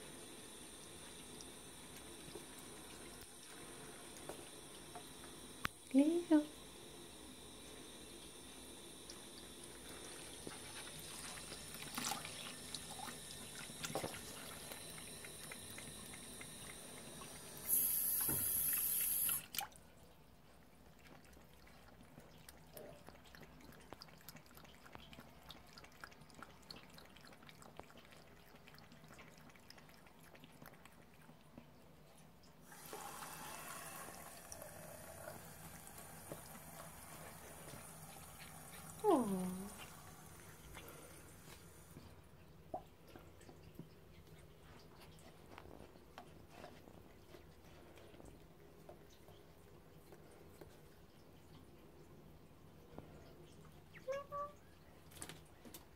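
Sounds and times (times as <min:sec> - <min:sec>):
tap water trickling into basin: 0:07.6 - 0:55.9
water hiss: 0:12.5 - 0:19.5, 0:32.7 - 0:42.0.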